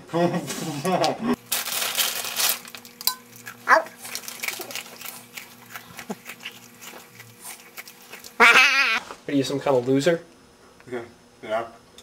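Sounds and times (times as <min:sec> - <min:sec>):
person chewing food: 0:02.8 - 0:09.0.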